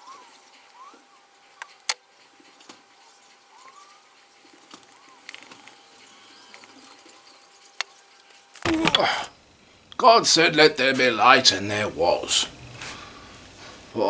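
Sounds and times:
faint rising chirps: 3.0 - 8.1.

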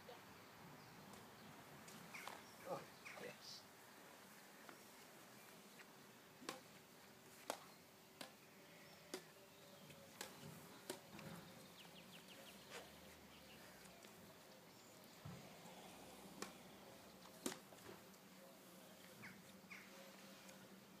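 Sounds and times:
rackets hitting shuttlecock: 9.1 - 9.4, 17.4 - 17.7.

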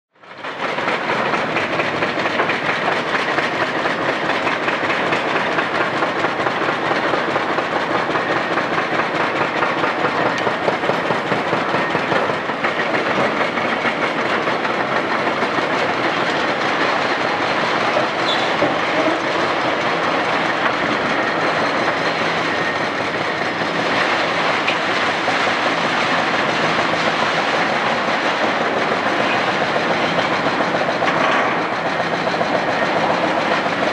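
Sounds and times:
diesel engines running: 0.3 - 33.9.

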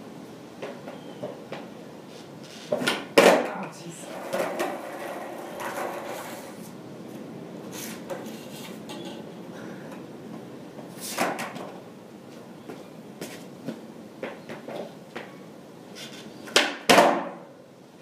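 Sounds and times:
footsteps and skateboard knocks: 0.6 - 6.5, 9.9 - 15.4, 16.0 - 17.4
skateboard clack: 2.7 - 6.7, 11.0 - 11.8, 16.0 - 17.5.

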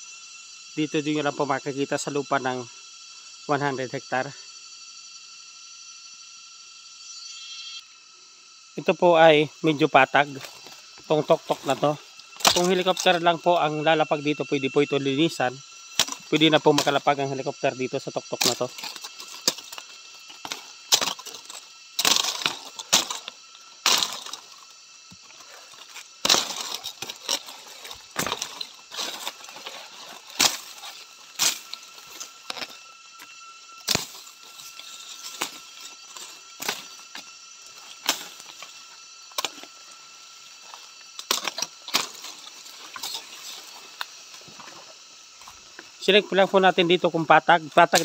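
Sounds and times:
insects buzzing: 0.0 - 48.0
twigs snapping underfoot: 11.6 - 13.2, 18.4 - 32.7.

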